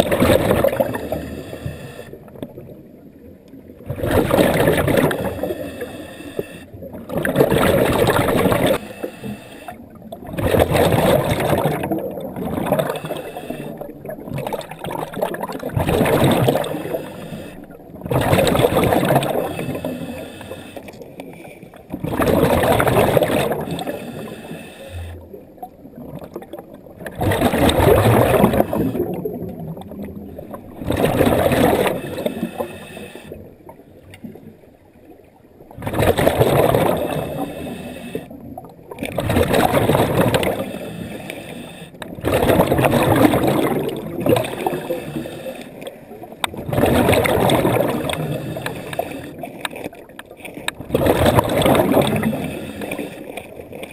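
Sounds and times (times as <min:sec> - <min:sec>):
exhaled air bubbling underwater: 0:00.0 - 0:53.9
breathing apparatus hissing: 0:05.4 - 0:06.7, 0:12.9 - 0:13.8, 0:16.8 - 0:17.6, 0:19.4 - 0:21.5, 0:23.8 - 0:25.0, 0:32.0 - 0:33.4, 0:37.4 - 0:38.3, 0:40.6 - 0:42.0, 0:44.9 - 0:45.8.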